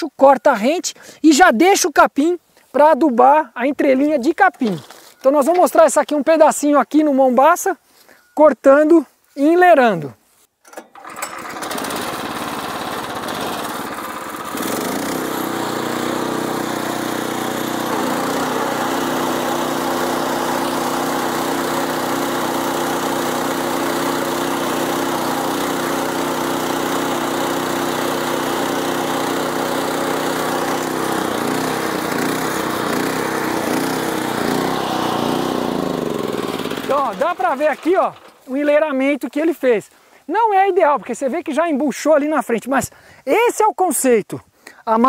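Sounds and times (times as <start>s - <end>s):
small gasoline engine running: 10.8s - 38.8s.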